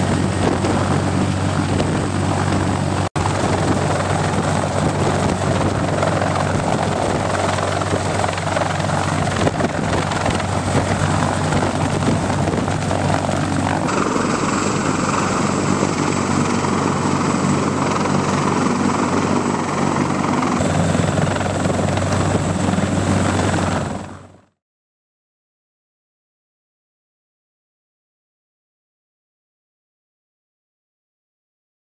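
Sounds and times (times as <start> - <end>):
helicopter hovering: 0.0 - 24.6.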